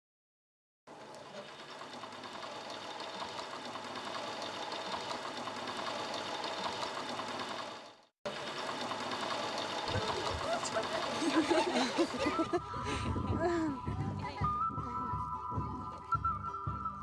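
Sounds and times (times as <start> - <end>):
spinning wheel whirring: 0.9 - 12.7.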